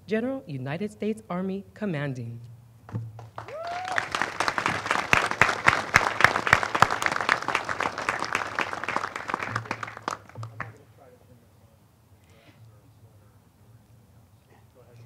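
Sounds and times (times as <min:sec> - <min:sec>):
audience applause: 0:03.2 - 0:10.8.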